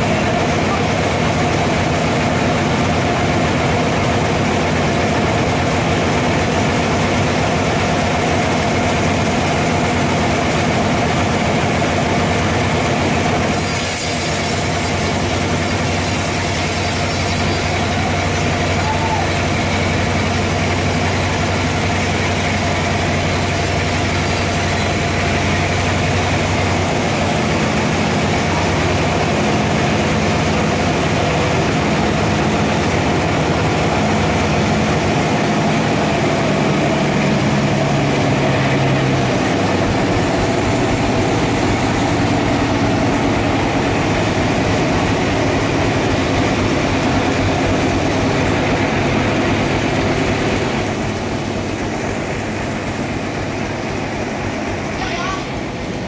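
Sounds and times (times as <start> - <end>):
band saw whirring: 0.0 - 56.0
saw blade cutting log: 13.4 - 25.6.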